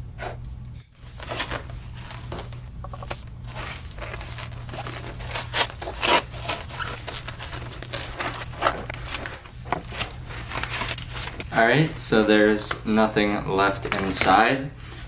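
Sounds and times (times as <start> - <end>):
plastic mailer crinkling and tearing: 3.1 - 11.9.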